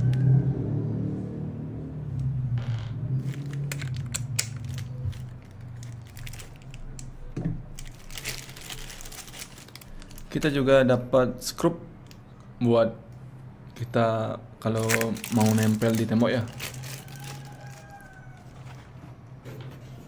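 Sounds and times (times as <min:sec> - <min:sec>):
low hum: 0:00.0 - 0:10.4
plastic bag crinkling: 0:03.2 - 0:10.7, 0:14.6 - 0:18.9.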